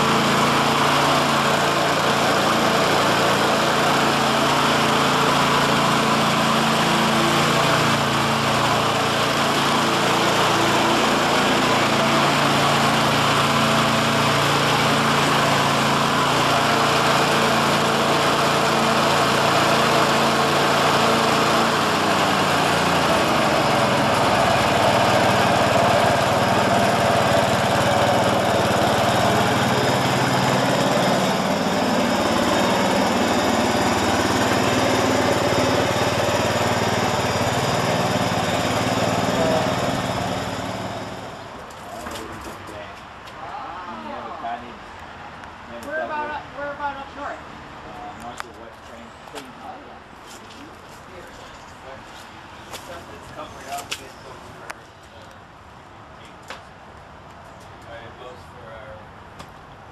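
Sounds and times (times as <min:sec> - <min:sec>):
lawn mower engine running: 0:00.0 - 0:43.2.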